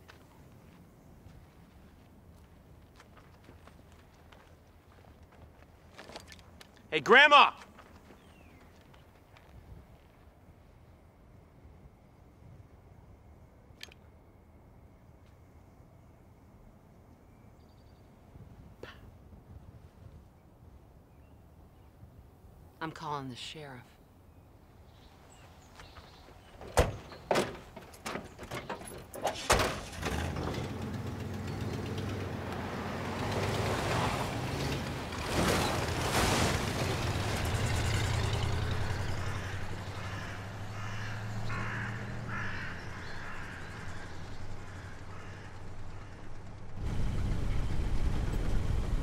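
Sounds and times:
tyres on sandy dirt: 0.0 - 11.1, 24.9 - 49.0
truck doors knocking and slamming: 26.6 - 30.8
truck engine running: 29.8 - 49.0.

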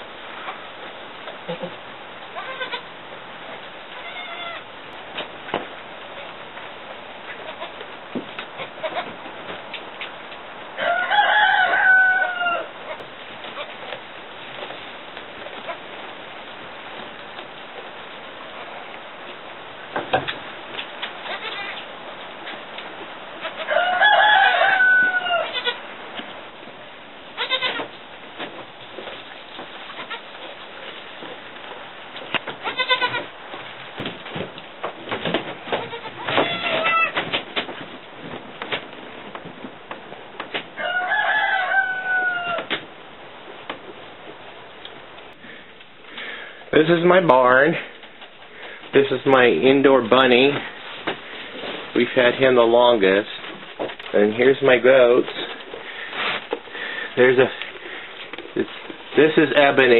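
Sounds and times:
goat kids rustling in straw: 0.0 - 59.9
faint goat kid call: 1.4 - 2.9, 4.0 - 4.7, 7.3 - 7.8, 8.4 - 9.2, 21.2 - 21.9, 23.4 - 25.8, 27.4 - 27.9, 32.4 - 33.3, 35.7 - 37.2, 40.8 - 42.8
steady hiss: 42.7 - 59.9.

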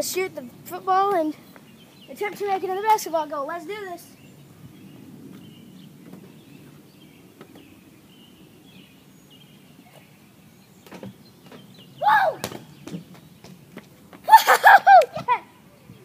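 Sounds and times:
boy shouting: 12.0 - 12.4, 14.3 - 15.6.

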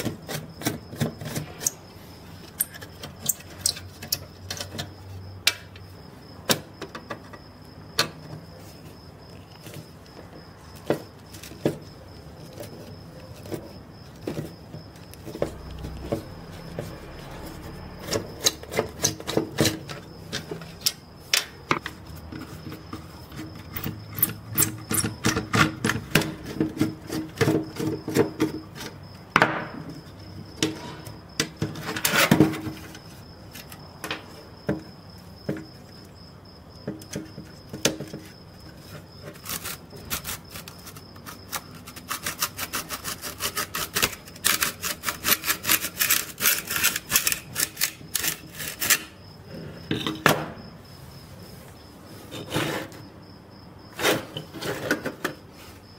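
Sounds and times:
screwdriver metal clicks and scrapes: 39.4 - 49.1.

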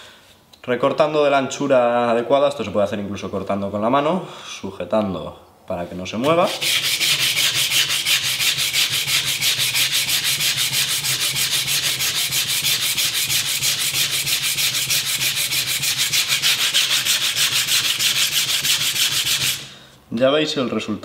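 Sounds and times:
sandpaper rubbing on metal blade: 6.2 - 19.7.

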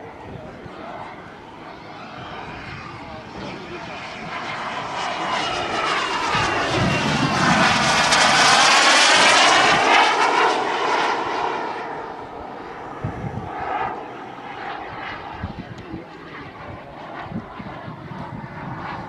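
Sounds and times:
model jet turbine whine: 0.0 - 19.0.

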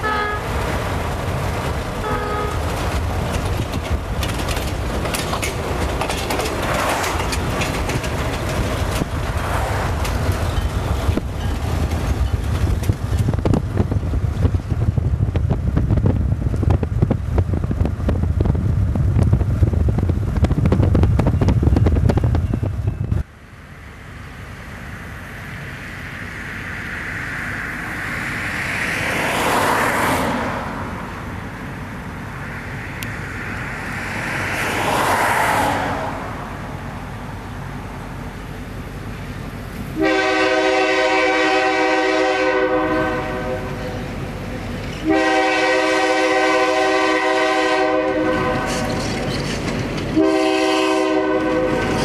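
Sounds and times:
diesel locomotive hauling train: 0.0 - 52.0
moving car rumble: 0.0 - 52.0
wind buffeting microphone: 2.6 - 23.3.

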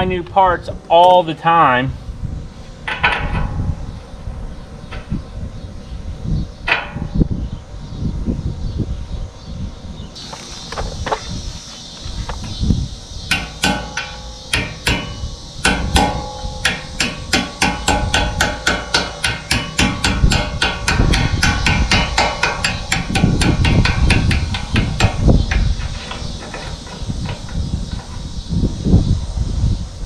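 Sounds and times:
hammer tapping steel on steel: 13.3 - 26.2.

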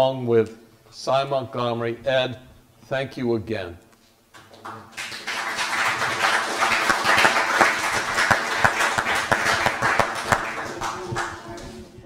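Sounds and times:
audience applauding: 4.4 - 11.8.

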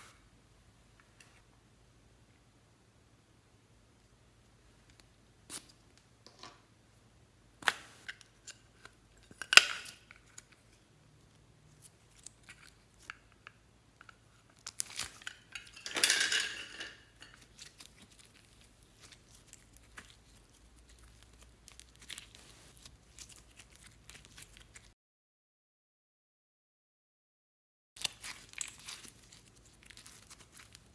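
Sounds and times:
sticky slime crackling: 14.3 - 15.2, 17.3 - 24.9, 28.0 - 30.9
slime squelching: 17.2 - 24.9, 28.0 - 30.9.

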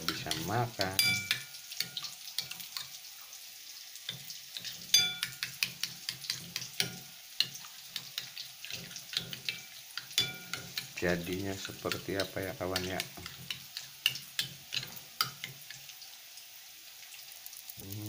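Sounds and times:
spoon clinking against bowl: 0.1 - 2.6, 4.9 - 7.0, 9.1 - 10.9.

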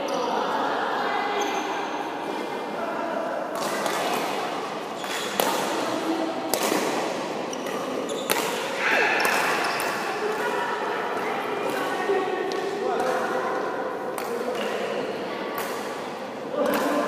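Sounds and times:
badminton racket hitting shuttlecock: 3.6 - 10.6.

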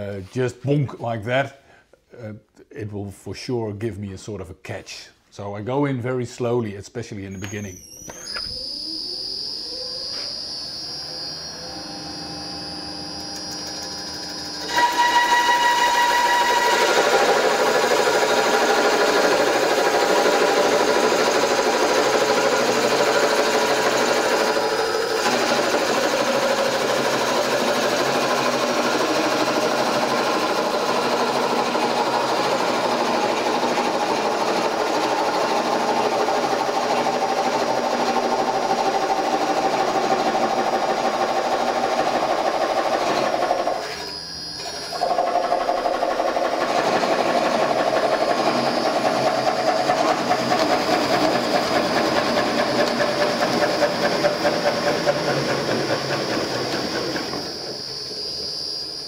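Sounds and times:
motor whine: 7.4 - 33.4, 43.0 - 59.0.

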